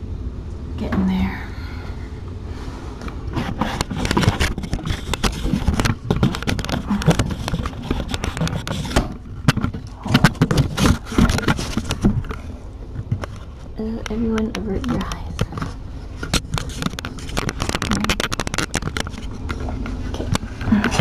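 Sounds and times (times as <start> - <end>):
camera handling scraping: 3.3 - 13.5, 14.9 - 21.0.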